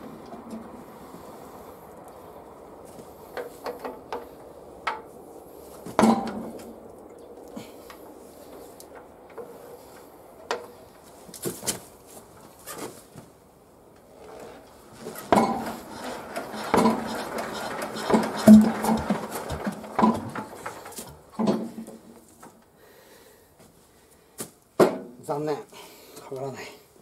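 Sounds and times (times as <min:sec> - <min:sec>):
diesel engine turning over: 0:00.0 - 0:11.8, 0:14.0 - 0:22.6
engine crank clanking: 0:03.3 - 0:05.1, 0:05.9 - 0:11.0, 0:14.1 - 0:22.2.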